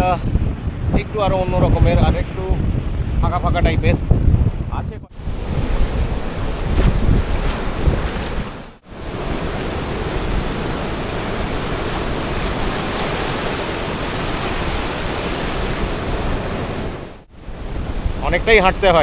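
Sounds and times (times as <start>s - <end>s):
wind buffeting microphone: 0.0s - 19.0s
sea surf washing onto beach: 5.1s - 19.0s.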